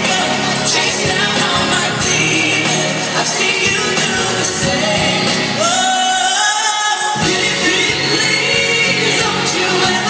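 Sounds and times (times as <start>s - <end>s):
live pop band with singer: 0.0s - 10.0s.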